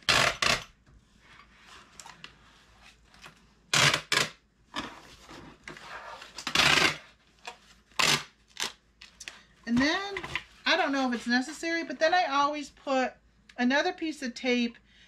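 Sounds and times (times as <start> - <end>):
packing tape pulled from tape gun: 6.2 - 7.1, 7.9 - 8.8.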